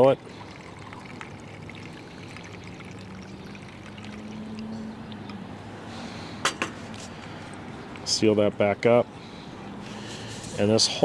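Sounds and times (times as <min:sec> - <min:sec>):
liquid trickling into burner: 0:00.0 - 0:04.7.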